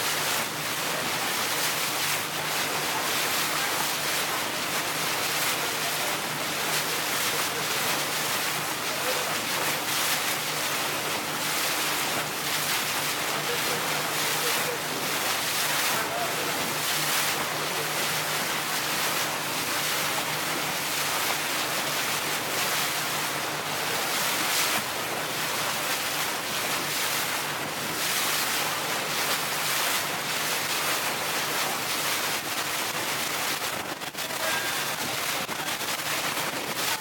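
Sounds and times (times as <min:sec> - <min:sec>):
water rushing along hull: 0:00.0 - 0:37.0.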